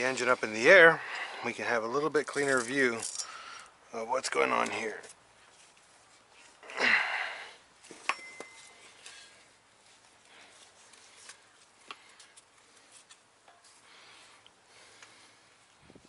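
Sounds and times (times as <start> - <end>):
ringing metal clink: 8.0 - 8.8.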